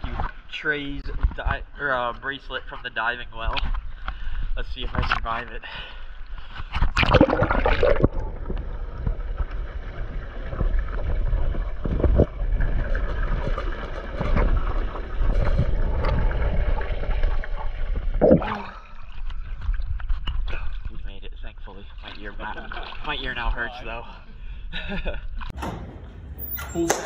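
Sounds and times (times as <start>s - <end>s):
water splash: 6.9s - 20.8s
underwater rumble: 6.9s - 21.9s.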